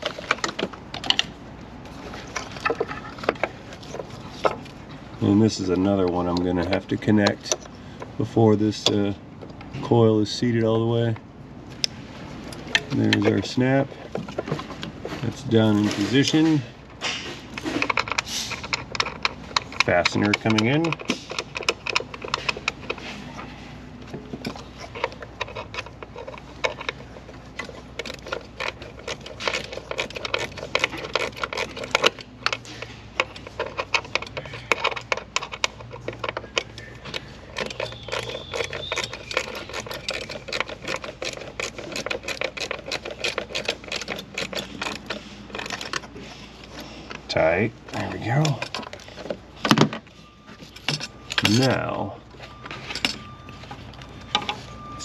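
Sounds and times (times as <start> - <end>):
hand ratchet clicking: 24.4 - 46.2.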